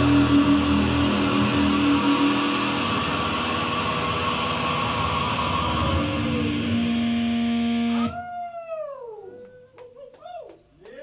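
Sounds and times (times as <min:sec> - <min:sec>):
band playing distorted noise-rock: 0:00.0 - 0:08.2
faint gliding falling tones: 0:00.0 - 0:08.2.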